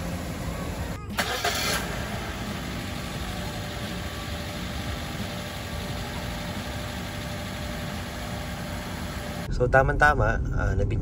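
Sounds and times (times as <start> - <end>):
car engine idling: 0.0 - 9.5.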